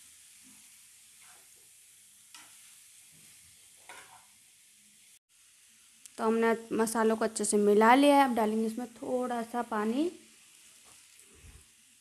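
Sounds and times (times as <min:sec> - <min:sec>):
vegetables sizzling in a pan: 0:00.0 - 0:12.0
metal spatula scraping pan: 0:03.8 - 0:04.3.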